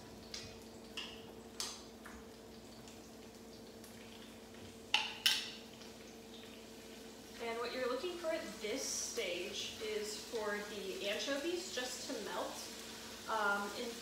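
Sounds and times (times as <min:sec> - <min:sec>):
utensil tapping in skillet: 0:04.6 - 0:06.5.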